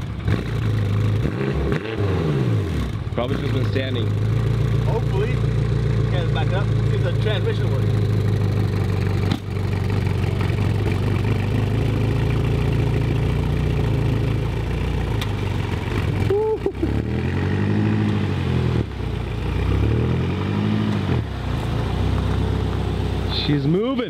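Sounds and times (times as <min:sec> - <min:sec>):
car engine idling and revving: 0:00.0 - 0:24.0.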